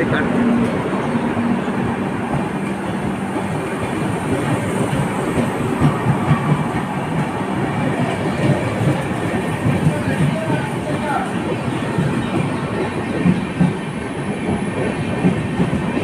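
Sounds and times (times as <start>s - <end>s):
train coaches rumbling past: 0.0s - 16.0s.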